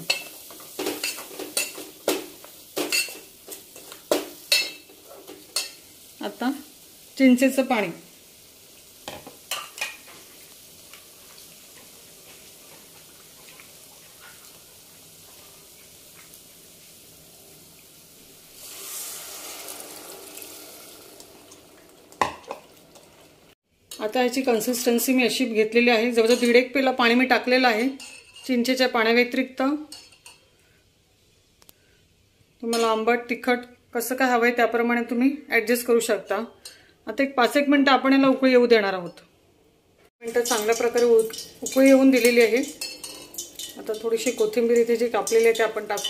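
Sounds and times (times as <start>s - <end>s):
oil sizzling: 0.0s - 32.0s, 40.1s - 46.0s
liquid pouring into a pot: 18.5s - 23.3s.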